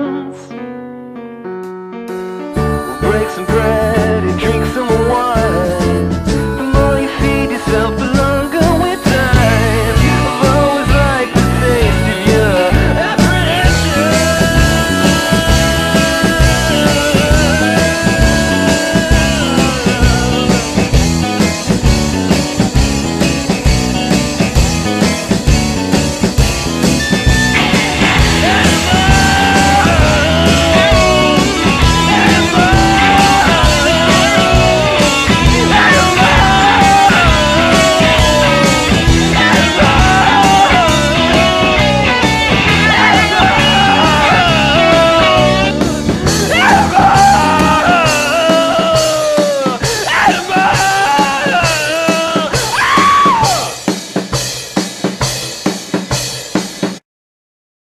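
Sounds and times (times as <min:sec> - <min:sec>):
person singing: 0:00.0 - 0:00.7, 0:02.4 - 0:21.0, 0:27.5 - 0:53.9
guitar: 0:00.0 - 0:57.0
drums: 0:02.1 - 0:57.0.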